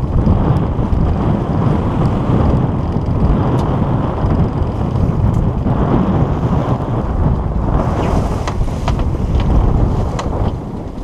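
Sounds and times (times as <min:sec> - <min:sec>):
wind buffeting the microphone: 0:00.0 - 0:11.0.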